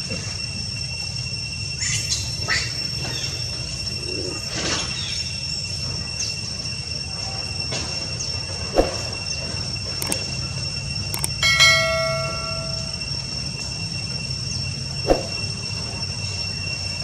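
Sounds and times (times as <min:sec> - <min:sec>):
steady hum: 0:08.4 - 0:17.0
steady high tones: 0:10.0 - 0:16.1
bell-like chime: 0:11.2 - 0:13.5.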